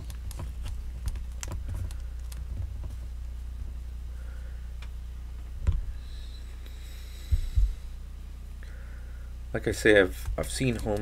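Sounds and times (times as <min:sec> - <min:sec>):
hands tapping and pressing clay: 0:00.0 - 0:03.0
steady low hum: 0:00.0 - 0:11.0.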